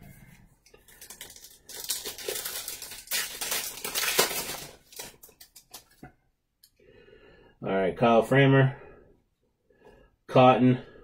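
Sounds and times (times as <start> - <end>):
wrapper tearing and crinkling: 0.8 - 6.0.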